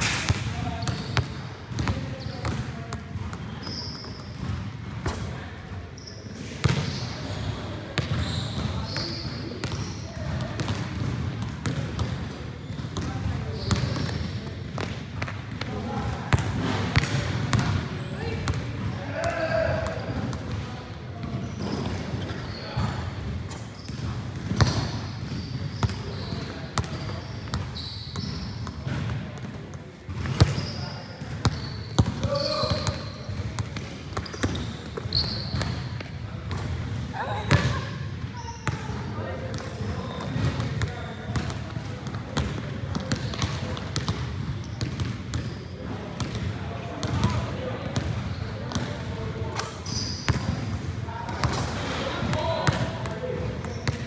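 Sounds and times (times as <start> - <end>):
sneakers squeaking on court: 0.0 - 15.6, 21.2 - 47.2, 47.9 - 49.0, 49.6 - 50.7, 51.3 - 54.0
basketball bouncing on court: 0.1 - 5.4, 6.0 - 17.8, 18.4 - 49.1, 49.9 - 51.6, 52.2 - 54.0.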